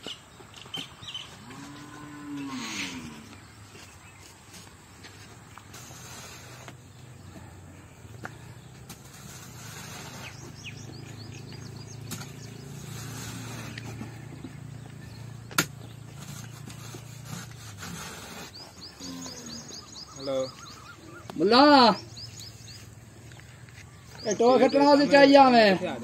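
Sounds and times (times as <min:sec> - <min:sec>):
spade scraping soil and stones: 0:00.7 - 0:07.6, 0:08.2 - 0:21.1.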